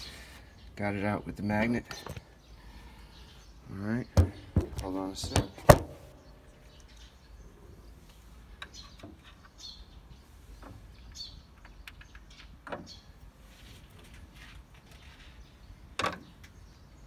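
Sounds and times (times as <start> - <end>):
low steady background noise: 0.0 - 17.0
light knocks: 4.2 - 6.2.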